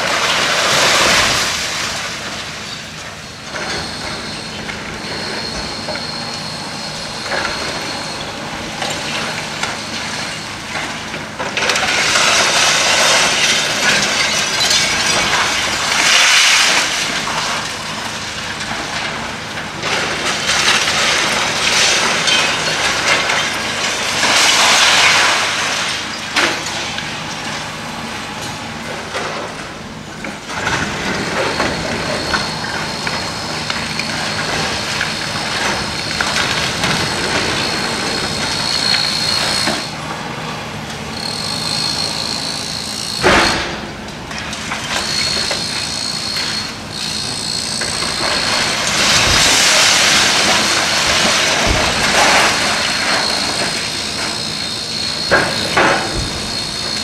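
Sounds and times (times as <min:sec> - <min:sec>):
high steady whine: 0:00.0 - 0:11.6, 0:24.5 - 0:57.0
heavy engine running: 0:00.0 - 0:57.0.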